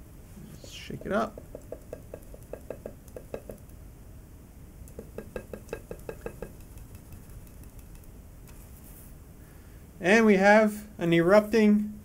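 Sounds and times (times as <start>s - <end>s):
plastic knocking on ceramic plate: 0.6s - 3.7s, 4.9s - 7.9s.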